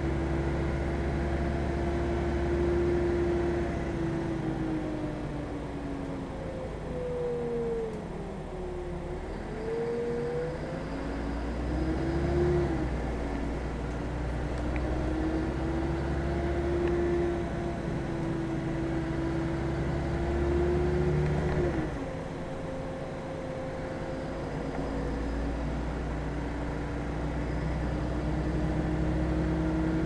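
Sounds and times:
bus engine and drivetrain: 0.0 - 30.0.

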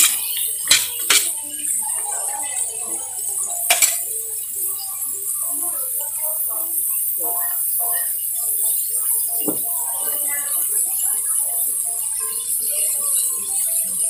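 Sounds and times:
metal spatula scraping pan: 0.0 - 1.4, 3.6 - 4.1
metal clinking: 3.6 - 4.1.

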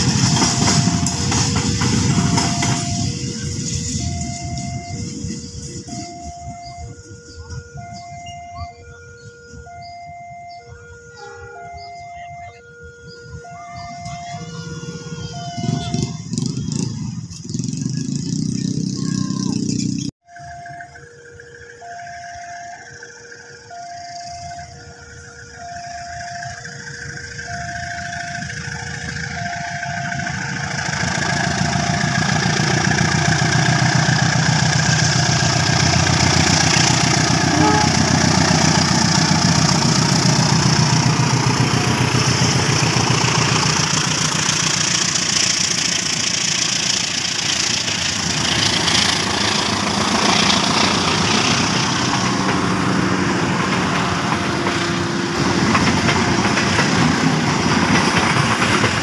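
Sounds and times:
train wheels clacking on rails: 0.0 - 6.4, 28.4 - 59.0
two-tone level crossing alarm: 0.0 - 16.9, 20.2 - 59.0
diesel locomotives passing: 0.0 - 59.0.

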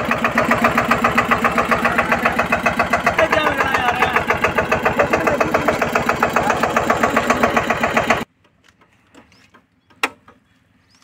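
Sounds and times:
tractor diesel engine chugging: 0.0 - 8.3.

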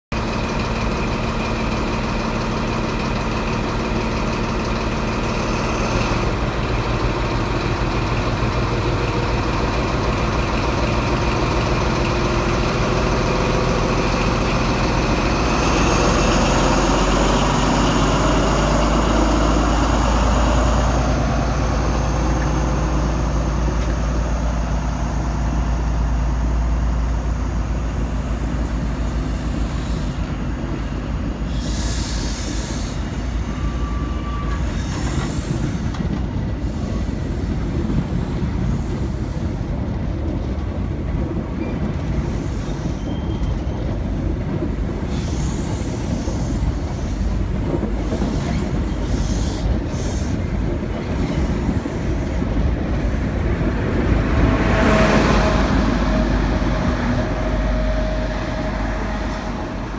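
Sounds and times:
train diesel engine: 0.1 - 59.9
train coaches rolling past: 0.2 - 59.9.

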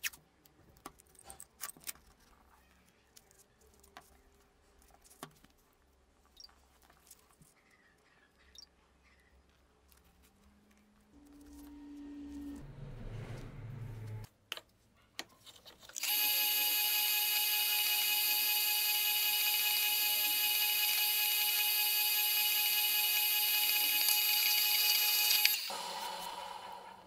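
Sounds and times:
drill press whining: 16.0 - 27.0.

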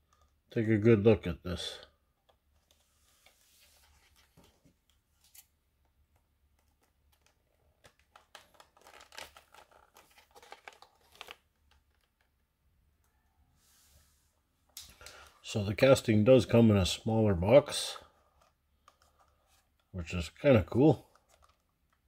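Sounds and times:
plastic packaging crinkling: 6.8 - 12.3, 21.0 - 22.0.

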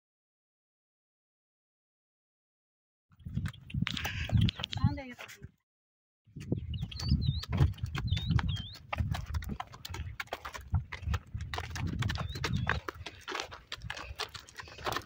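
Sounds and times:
hooves clip-clopping on gravel: 3.2 - 5.4, 6.4 - 15.0.

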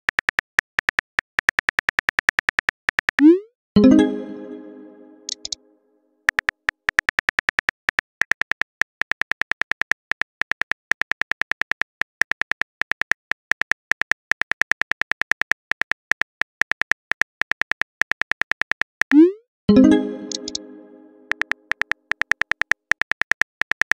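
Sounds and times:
phone keyboard typing clicks: 5.3 - 5.6, 20.2 - 20.6, 21.3 - 23.9.

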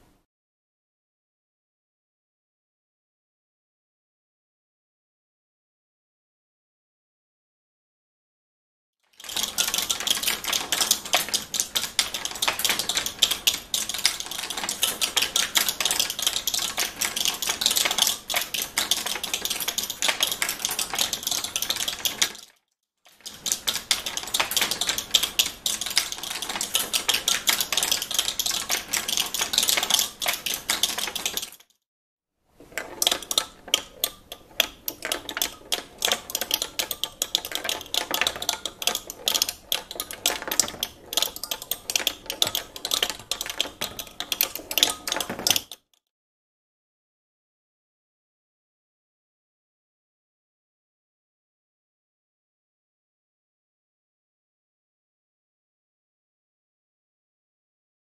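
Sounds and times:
steel balls rattling on screws: 9.2 - 22.5, 23.2 - 31.7, 32.7 - 45.8.

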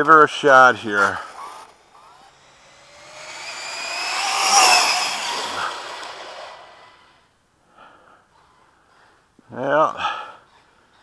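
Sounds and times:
rc car motor whine: 1.0 - 7.2.

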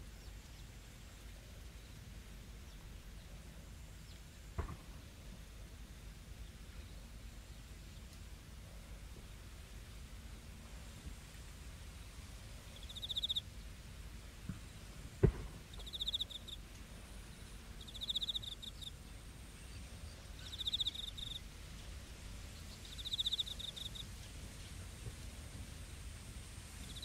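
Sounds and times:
open air hum: 0.0 - 27.0
cricket chirping: 12.7 - 13.5, 15.7 - 16.6, 17.8 - 19.0, 20.4 - 21.4, 22.8 - 24.1
sharp knock: 15.2 - 15.6.

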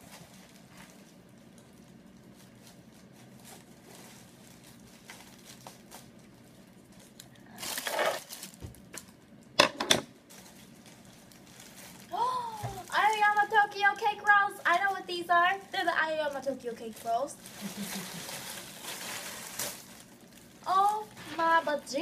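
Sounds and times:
plastic bag crinkling: 0.0 - 22.0.

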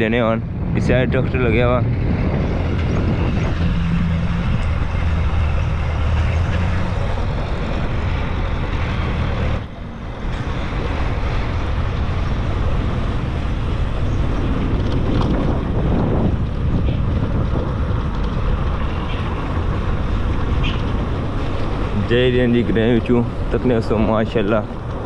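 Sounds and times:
road noise: 0.0 - 25.0
rushing wind: 0.0 - 25.0
vehicle engine running: 0.0 - 25.0.

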